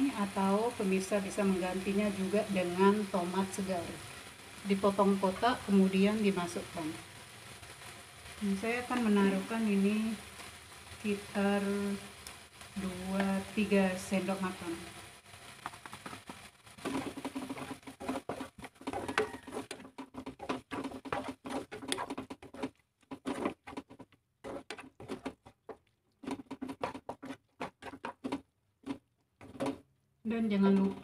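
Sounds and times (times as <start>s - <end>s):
spatula scraping a frying pan: 12.1s - 29.8s.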